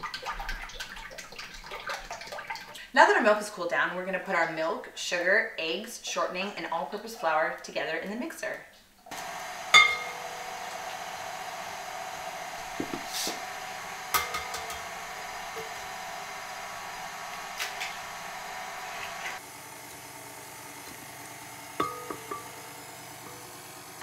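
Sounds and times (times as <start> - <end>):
stand mixer whisking: 9.1 - 24.0.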